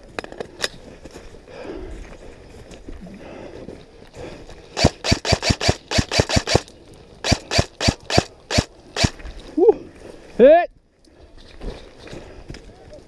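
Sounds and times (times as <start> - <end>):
airsoft rifle shots: 4.8 - 9.2.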